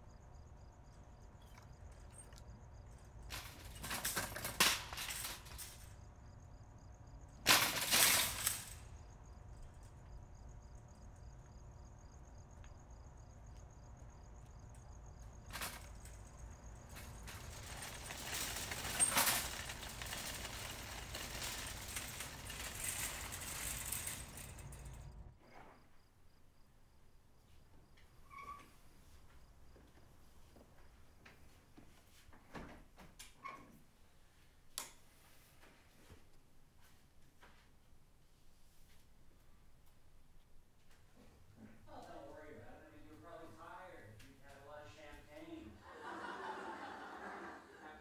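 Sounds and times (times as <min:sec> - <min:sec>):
crickets chirping: 0:00.0 - 0:31.8, 0:41.9 - 0:48.0.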